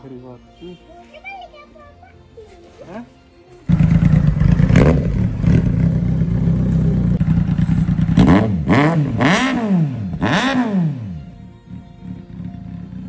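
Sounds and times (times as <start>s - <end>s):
motorcycle engine idling and revving: 3.7s - 13.0s.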